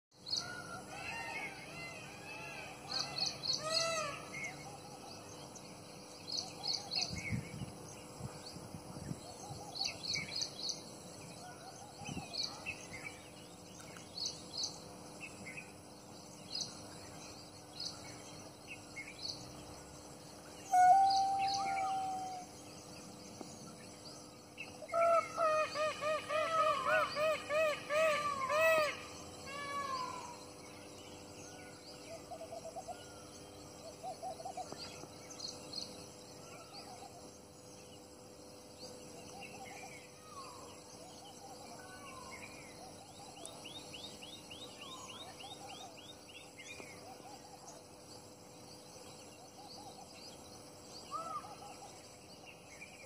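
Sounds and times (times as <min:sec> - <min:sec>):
loud bird calling: 0:00.4 - 0:04.9, 0:20.6 - 0:22.6, 0:24.8 - 0:30.5.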